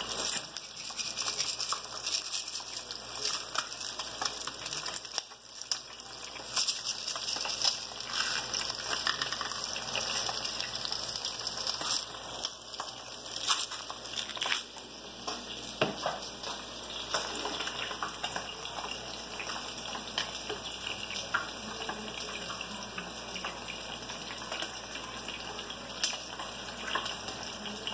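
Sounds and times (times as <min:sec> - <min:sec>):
fillets frying in hot oil: 0:00.0 - 0:27.9.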